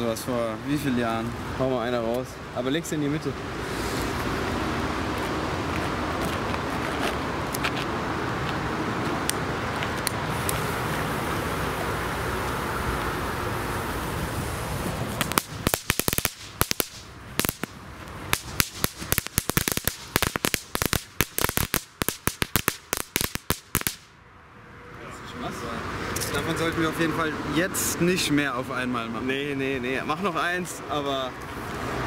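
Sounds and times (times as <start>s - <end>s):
background noise rush: 0.0s - 32.0s
firework cracks: 14.5s - 24.2s.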